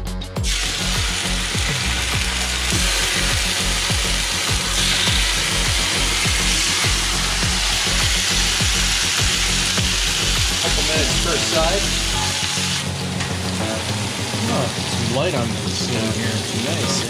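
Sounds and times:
meat sizzling in a hot pan: 0:00.4 - 0:13.2.

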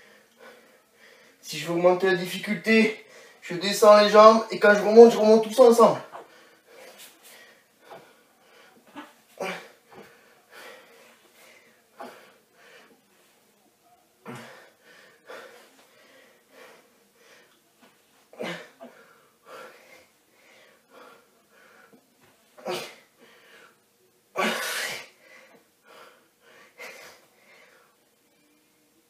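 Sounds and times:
man breathing hard: 0:00.0 - 0:01.4, 0:03.0 - 0:03.4, 0:09.4 - 0:13.0, 0:14.3 - 0:17.6, 0:18.4 - 0:22.0, 0:23.2 - 0:23.9, 0:24.6 - 0:28.0
faint steady hum: 0:05.5 - 0:29.0.

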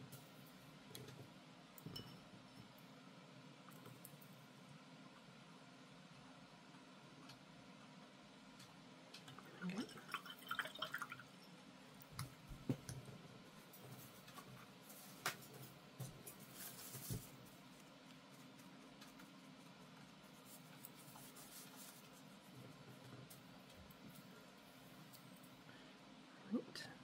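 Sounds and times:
paintbrush scratching on paper: 0:16.3 - 0:23.1.

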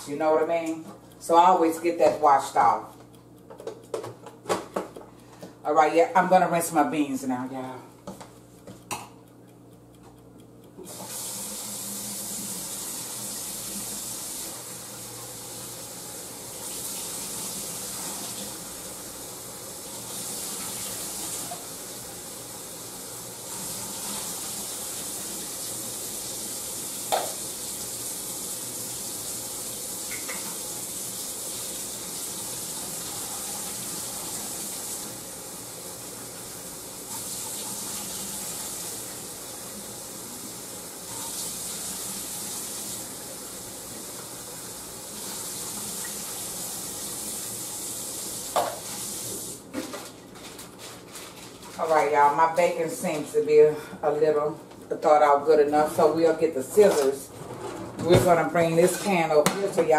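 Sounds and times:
faucet running into sink: 0:10.8 - 0:49.6.

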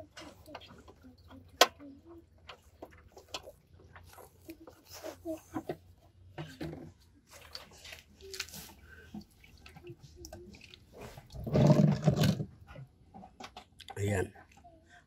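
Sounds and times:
water dripping into plastic basin: 0:06.4 - 0:11.4.

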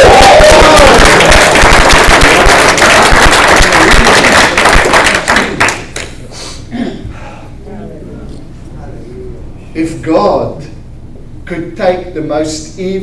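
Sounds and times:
people shouting: 0:00.0 - 0:01.3
congregation clapping: 0:00.0 - 0:06.2.

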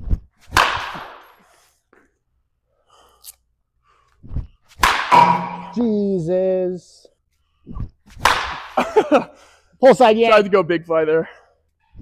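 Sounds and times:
bat hitting baseball: 0:00.5 - 0:01.3, 0:04.8 - 0:05.8, 0:08.2 - 0:08.8
thump and breathy rush: 0:04.0 - 0:04.6, 0:07.6 - 0:08.2
man's voice: 0:09.8 - 0:11.3.

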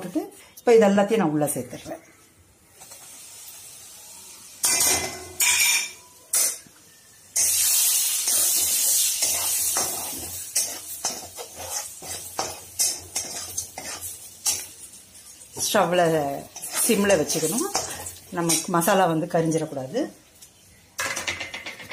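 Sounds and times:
oil sizzling: 0:02.6 - 0:21.9
spatula scraping pan: 0:08.3 - 0:14.8, 0:16.4 - 0:18.8
metal spoon knocking pan: 0:21.0 - 0:21.9.

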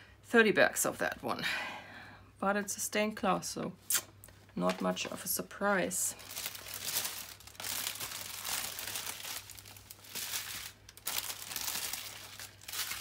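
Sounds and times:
plastic bags crinkling: 0:06.0 - 0:13.0.

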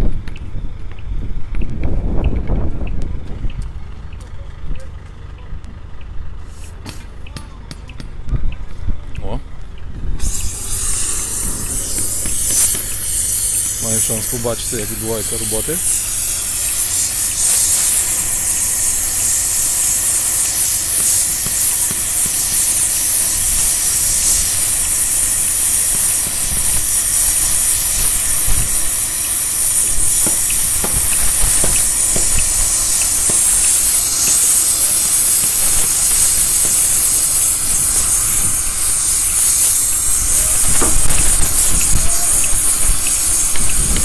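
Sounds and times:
gas torch hissing: 0:09.8 - 0:44.0.

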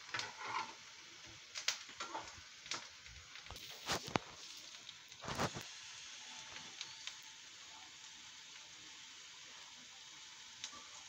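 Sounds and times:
oil sizzling in a pan: 0:00.0 - 0:11.0
utensil scraping a pan: 0:00.1 - 0:00.8.

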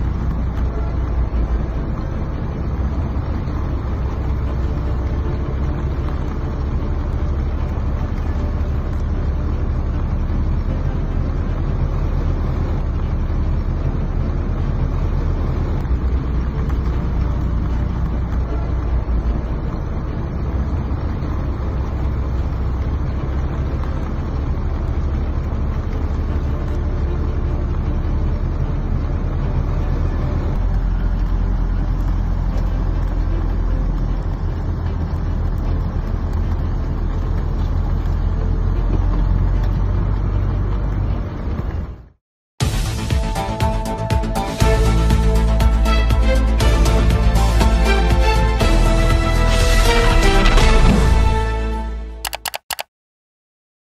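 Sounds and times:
rain and water hiss: 0:00.0 - 0:41.8
vehicle engine and road noise: 0:00.0 - 0:52.9.

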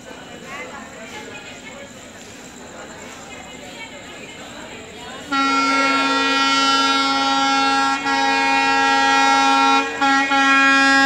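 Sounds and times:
locomotive air horn blast: 0:05.2 - 0:11.0.

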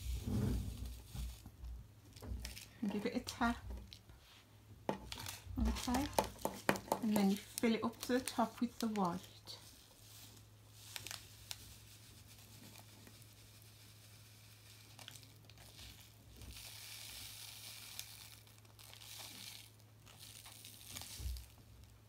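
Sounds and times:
plastic sachet crinkling: 0:04.9 - 0:22.0
crystals pouring into plastic mould: 0:05.1 - 0:21.6.

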